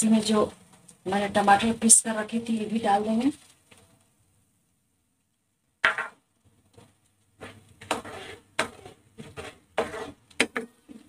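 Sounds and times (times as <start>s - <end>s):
spatula scraping a pan: 7.4s - 10.4s.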